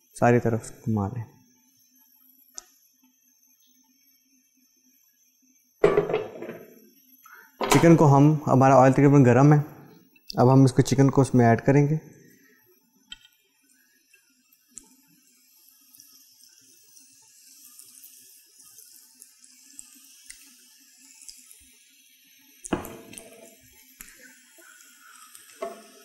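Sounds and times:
chicken frying in oil: 14.3s - 26.0s.

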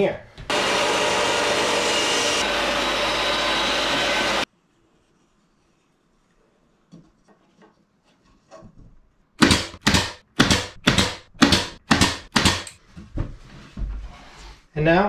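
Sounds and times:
faint tapping and wood handling: 6.9s - 9.1s
nail gun firing: 9.4s - 12.8s.

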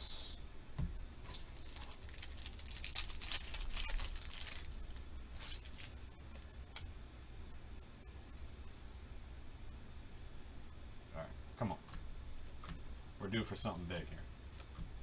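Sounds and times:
foil wrapper tearing and crinkling: 1.3s - 6.4s.

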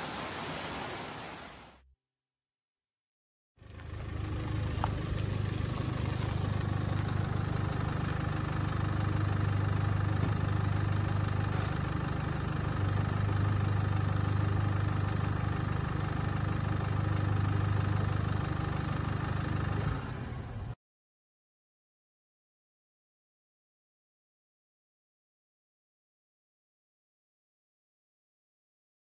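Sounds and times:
car engine idling: 3.6s - 20.8s.

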